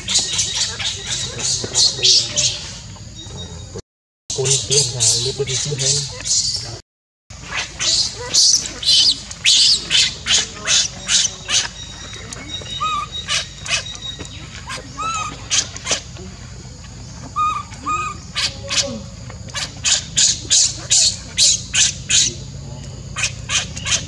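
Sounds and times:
baby monkey screaming: 0:00.0 - 0:02.7, 0:07.4 - 0:16.1, 0:17.3 - 0:22.5, 0:23.1 - 0:24.0.

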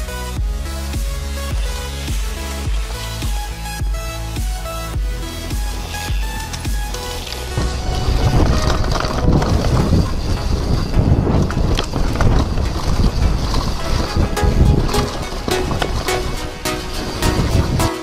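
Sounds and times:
bike knocking and rattling: 0:00.0 - 0:18.0
tyres rumbling on dirt: 0:00.0 - 0:18.0
wind rushing over microphone: 0:07.1 - 0:18.0.

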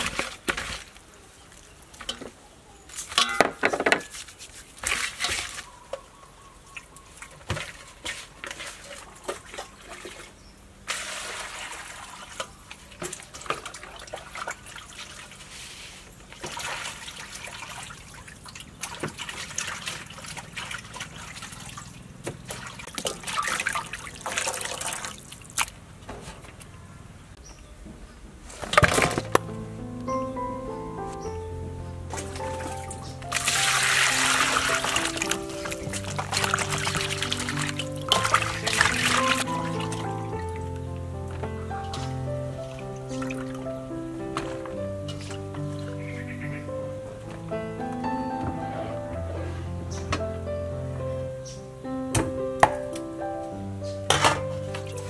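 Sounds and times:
water splashing in bowl: 0:03.0 - 0:06.1, 0:06.7 - 0:15.5, 0:16.2 - 0:25.8, 0:32.1 - 0:40.8.

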